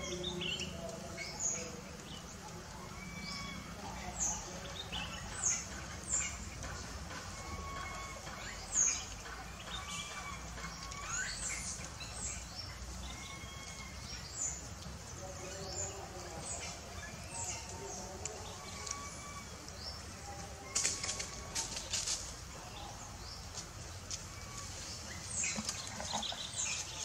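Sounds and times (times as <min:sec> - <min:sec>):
birds chirping and twittering: 0:00.0 - 0:27.0.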